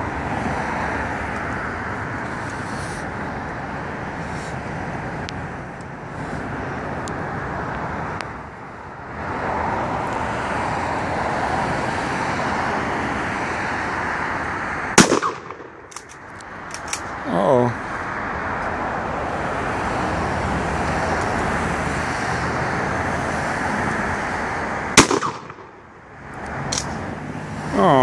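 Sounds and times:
road traffic: 0.0s - 28.0s
gunshot: 15.0s - 15.7s, 25.0s - 25.7s.

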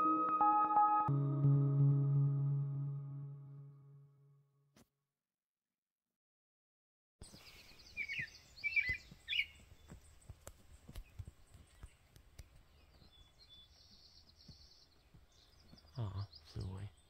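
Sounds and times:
songbird chirps: 7.2s - 17.0s.

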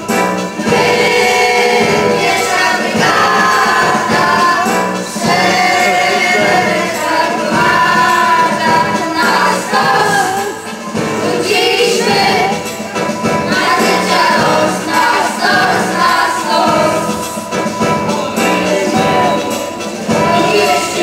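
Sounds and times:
children's choir singing: 0.0s - 21.0s.

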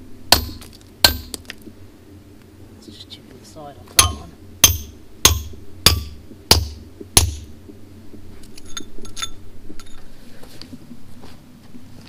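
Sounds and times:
hammer striking steel wedges: 0.3s - 1.4s, 4.0s - 7.5s.

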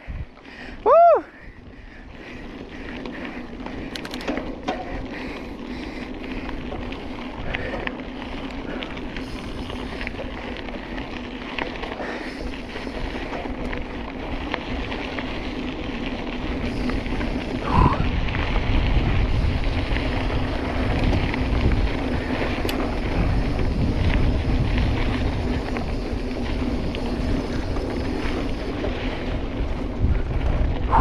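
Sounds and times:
bike rattles: 0.0s - 31.0s
bike tyres on dirt trail: 0.0s - 31.0s
bike jolt: 2.7s - 10.5s
wind buffeting microphone: 12.0s - 31.0s.

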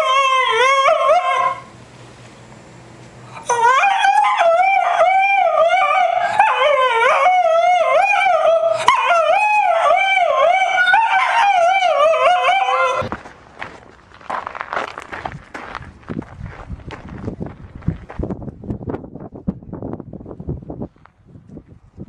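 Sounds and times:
dog howling: 0.0s - 1.7s, 3.4s - 13.1s.

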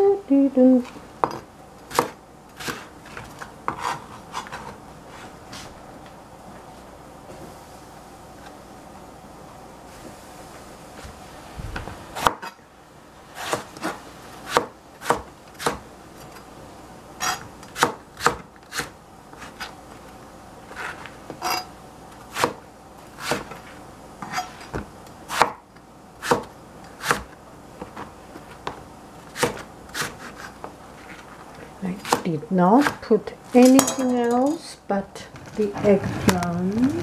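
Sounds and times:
knife chopping on cutting board: 1.2s - 4.8s, 12.2s - 12.6s, 13.4s - 15.8s, 17.2s - 19.7s, 22.3s - 22.6s, 23.2s - 23.6s, 24.2s - 25.6s, 26.2s - 30.6s, 32.0s - 33.1s.

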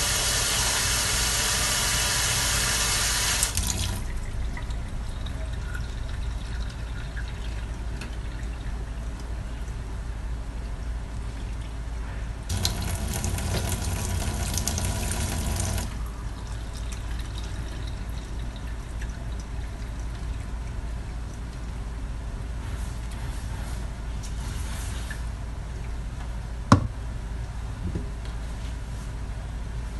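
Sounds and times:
water running from tap: 0.0s - 7.6s, 12.5s - 16.0s.

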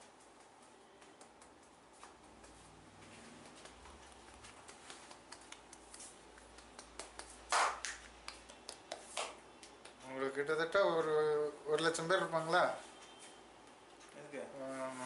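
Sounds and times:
hands rubbing hair: 0.2s - 10.1s
fingers tapping on scalp: 1.0s - 2.6s, 3.4s - 10.1s.

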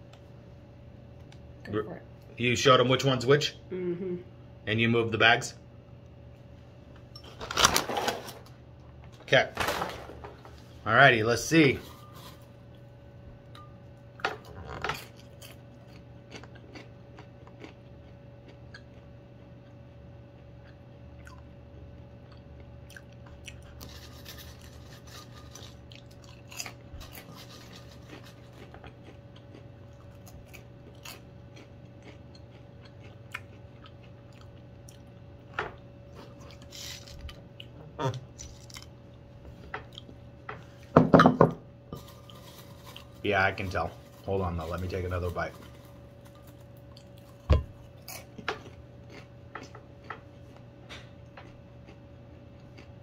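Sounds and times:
faint hum: 0.0s - 53.0s
popcorn chewing: 14.4s - 39.2s, 42.0s - 50.6s, 51.2s - 53.0s
hand rummaging in popcorn bowl: 42.0s - 46.6s.

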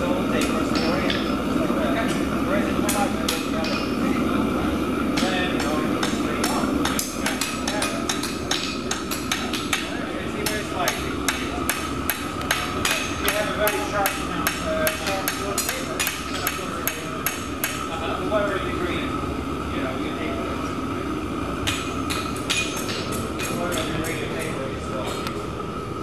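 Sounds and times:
steady hum: 0.0s - 26.0s
hammer striking iron on anvil: 0.4s - 1.3s, 2.8s - 4.0s, 5.2s - 17.9s, 21.6s - 24.6s.

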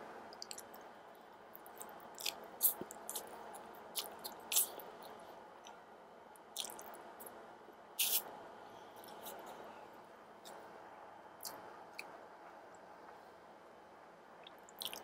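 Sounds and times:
chewing: 1.7s - 5.2s, 6.6s - 6.9s.

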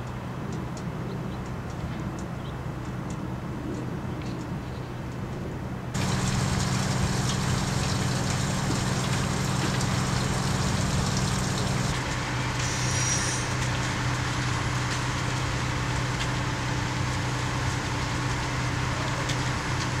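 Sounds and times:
fire truck engines running: 6.0s - 20.0s.

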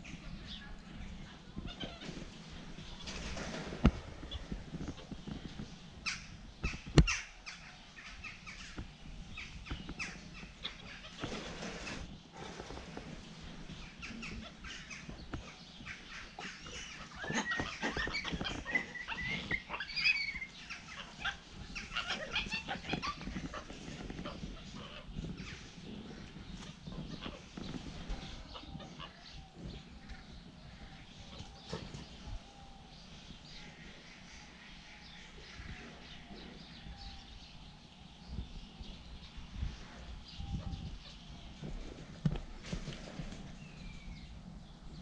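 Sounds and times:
monkeys chirping and squeaking: 13.8s - 30.2s.

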